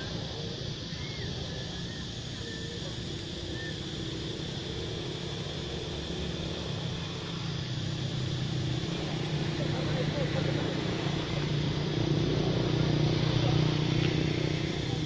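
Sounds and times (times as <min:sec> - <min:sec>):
background hiss: 0:00.0 - 0:15.0
low engine hum: 0:00.0 - 0:15.0
faint high chirps: 0:00.8 - 0:04.3.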